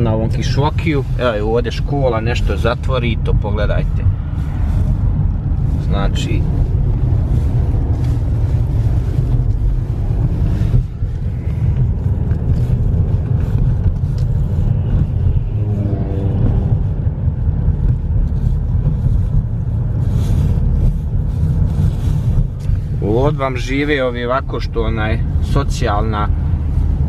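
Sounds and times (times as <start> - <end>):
road and engine rumble in car: 0.0 - 27.0.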